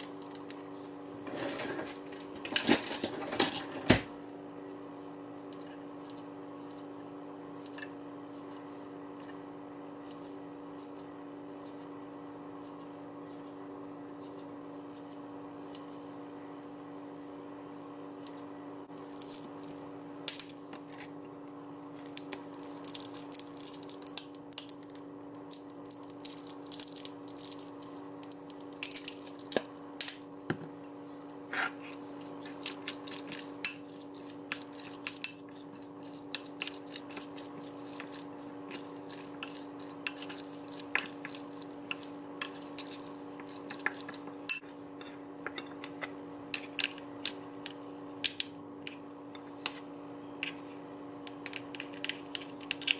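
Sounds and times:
steady hum: 0:00.0 - 0:52.9
utensils clinking on bowls: 0:31.8 - 0:45.9.

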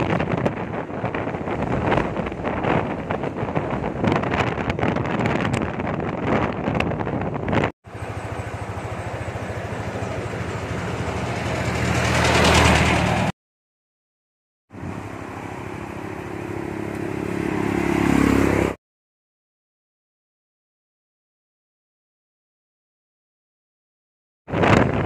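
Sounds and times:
scooter engine running: 0:07.9 - 0:13.3.

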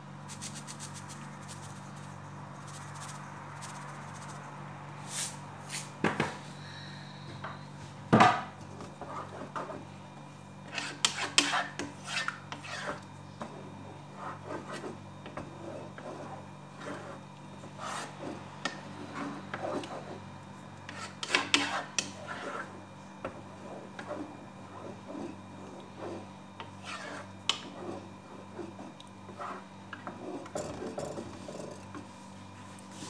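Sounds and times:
steady low hum: 0:00.0 - 0:33.0
wooden spoon scraping a pot: 0:08.9 - 0:09.9, 0:10.6 - 0:32.1.

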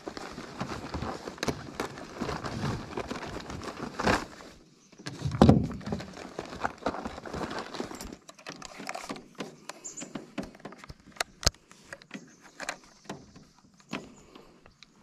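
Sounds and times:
knocks and rustling in boat: 0:05.0 - 0:11.2.

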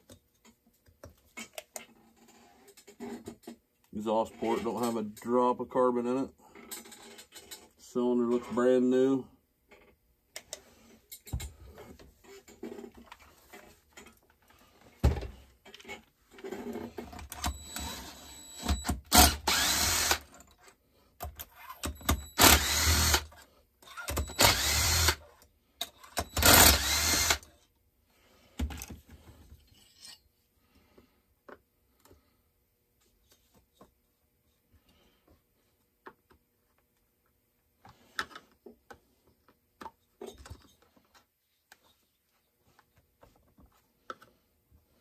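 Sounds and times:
cordless drill spinning screws: 0:16.6 - 0:20.5, 0:21.5 - 0:25.3, 0:26.0 - 0:27.5.

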